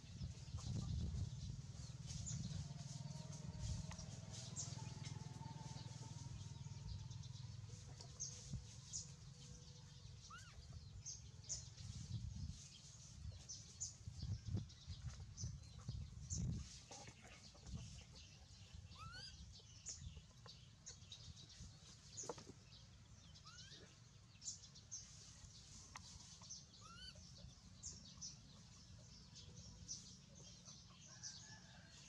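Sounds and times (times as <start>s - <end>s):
low rumbling: 0.0s - 8.2s
small birds chirping: 0.0s - 32.0s.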